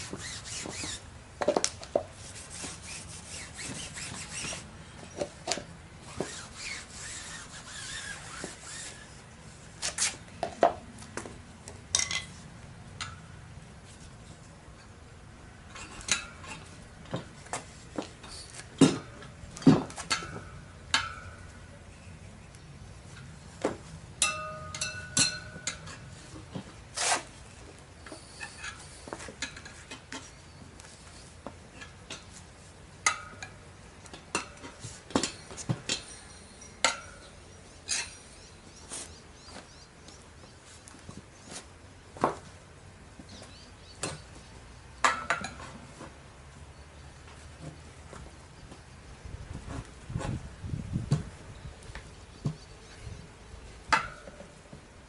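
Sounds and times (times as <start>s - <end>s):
tire levers clinking on rim: 15.6s - 22.2s, 23.0s - 41.5s, 43.2s - 46.8s.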